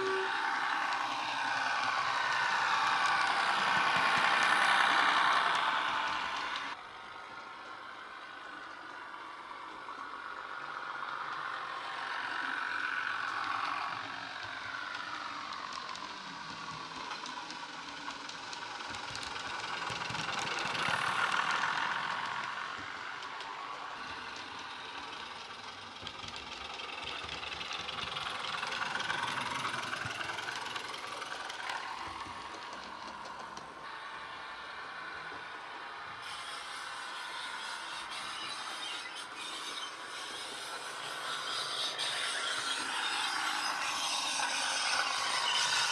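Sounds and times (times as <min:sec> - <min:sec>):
diesel train engine through small speaker: 0:00.0 - 0:45.9.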